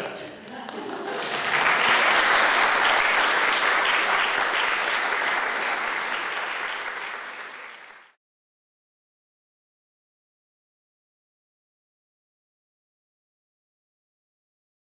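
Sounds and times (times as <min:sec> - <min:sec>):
audience applauding: 0:00.5 - 0:08.2.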